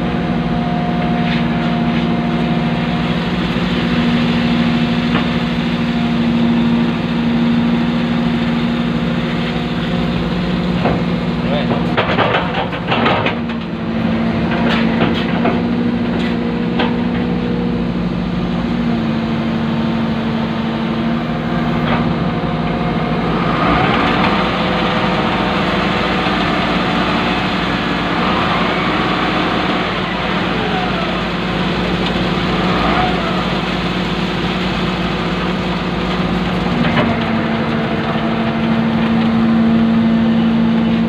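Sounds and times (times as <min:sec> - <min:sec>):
diesel engine running: 0:00.0 - 0:41.0
loud rushing noise: 0:23.0 - 0:36.0.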